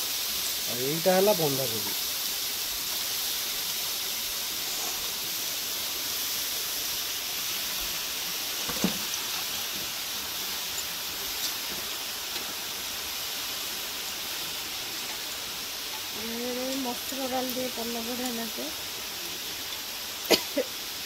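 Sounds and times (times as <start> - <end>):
vegetables sizzling in pan: 0.0 - 21.0.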